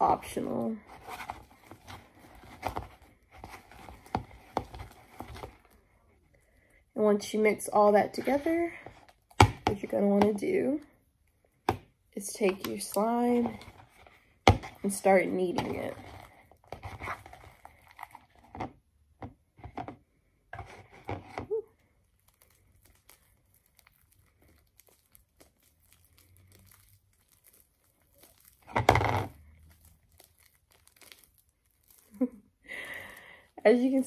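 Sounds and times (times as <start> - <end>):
slime squishing and tearing: 11.5 - 18.5, 21.5 - 32.3.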